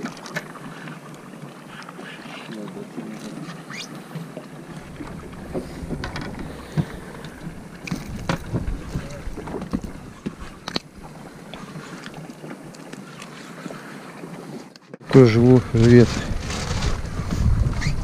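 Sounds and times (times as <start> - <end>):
wind buffeting microphone: 4.8 - 10.6, 15.2 - 18.0.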